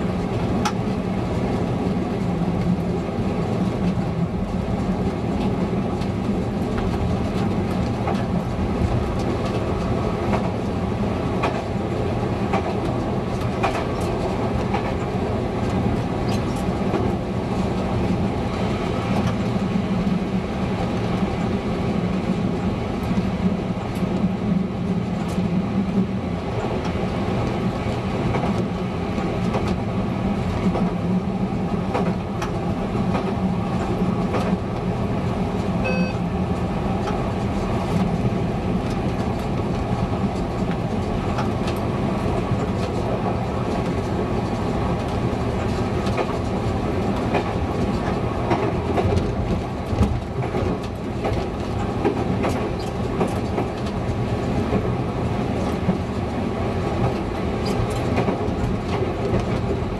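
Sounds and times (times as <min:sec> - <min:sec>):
short beep: 0:35.8 - 0:36.2.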